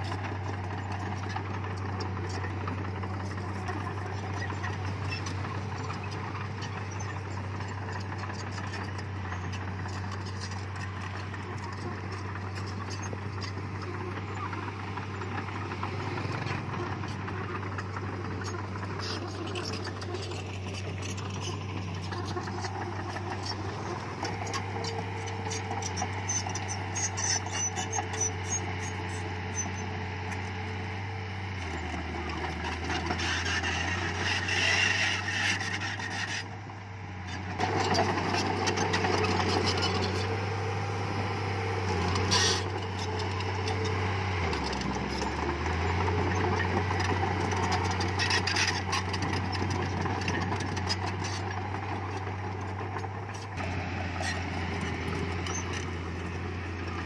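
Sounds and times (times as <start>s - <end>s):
heavy diesel engine droning: 0.0s - 57.0s
rattling and scraping: 14.6s - 28.9s.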